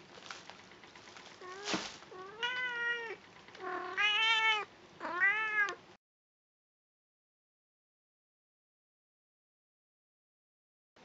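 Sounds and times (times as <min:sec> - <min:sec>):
cat meowing: 0:01.4 - 0:05.8.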